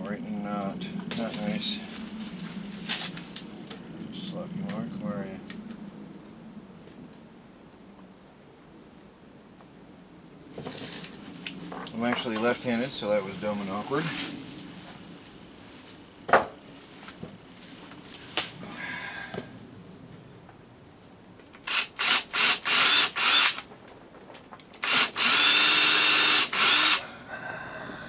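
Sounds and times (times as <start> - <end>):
cordless drill driving screws: 21.6 - 23.7, 24.8 - 27.0.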